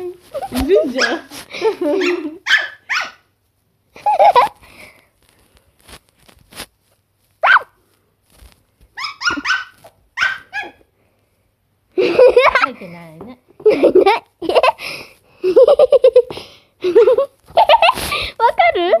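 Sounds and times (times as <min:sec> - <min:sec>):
puppy yapping: 0:02.0 - 0:03.3, 0:07.4 - 0:07.8, 0:09.0 - 0:10.8.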